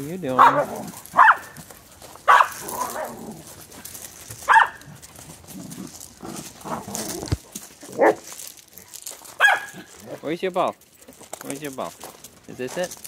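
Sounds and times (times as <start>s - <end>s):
dog barking: 0.4s - 1.6s, 2.3s - 3.2s, 4.5s - 4.9s, 8.0s - 8.2s, 9.4s - 9.9s.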